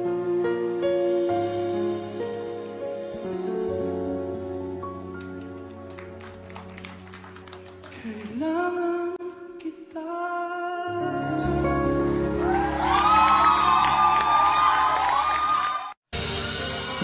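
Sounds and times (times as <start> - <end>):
audience cheering: 12.2 - 16.0.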